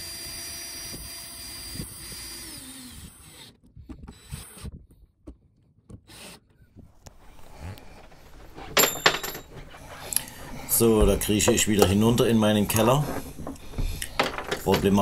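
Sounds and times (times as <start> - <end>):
cordless drill driving screws: 0.1 - 4.7
clicks and knocks of tools: 7.0 - 15.0.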